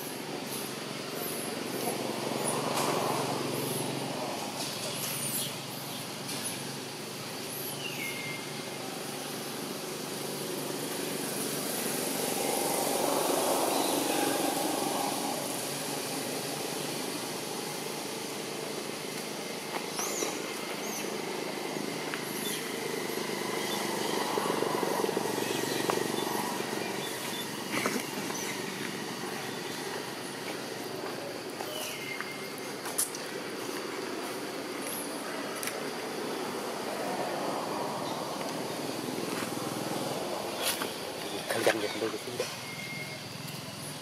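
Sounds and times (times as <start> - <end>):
vehicles passing: 0.0 - 44.0
faint high chirps: 31.6 - 32.8, 40.8 - 43.6.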